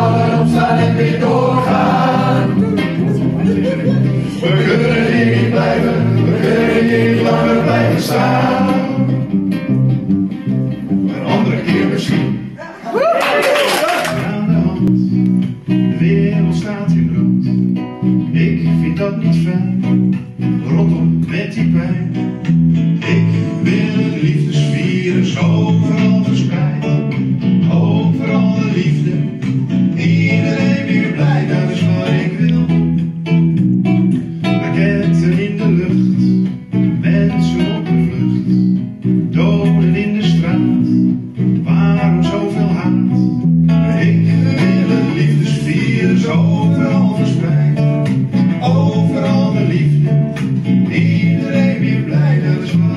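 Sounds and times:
person singing: 0.0s - 9.2s, 34.6s - 38.5s, 41.6s - 47.8s
acoustic guitars strummed: 0.0s - 12.6s, 14.0s - 52.9s
electric bass: 0.0s - 12.6s, 14.1s - 52.9s.

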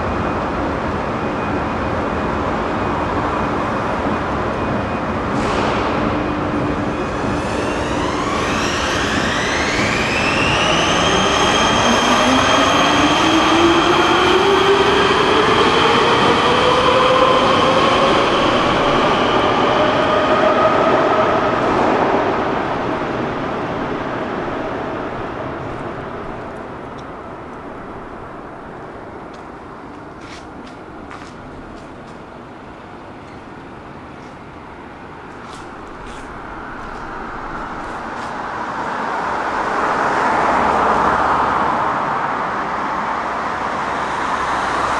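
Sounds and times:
metro train motors whining: 0.0s - 44.9s
road traffic noise: 22.7s - 44.9s.

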